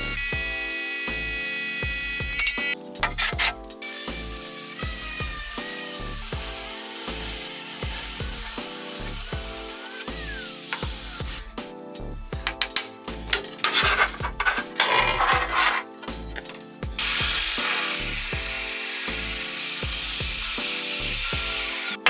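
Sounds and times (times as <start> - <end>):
drill press drilling steel: 4.0 - 11.4, 17.0 - 22.0
short scraping sounds: 13.6 - 16.4.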